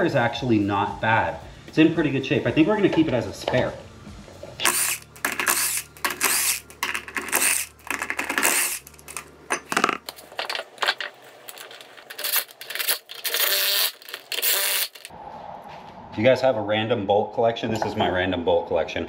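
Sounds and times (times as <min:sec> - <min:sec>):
impact tool spinning lug nuts: 0:04.6 - 0:15.1
metal clinks of nuts: 0:04.7 - 0:15.1.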